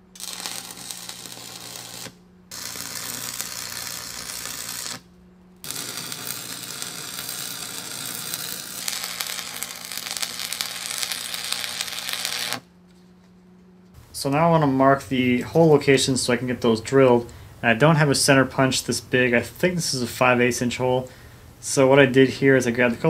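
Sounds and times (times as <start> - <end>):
welding arc crackling and sizzling: 0.0 - 12.7
low hum: 0.0 - 23.0.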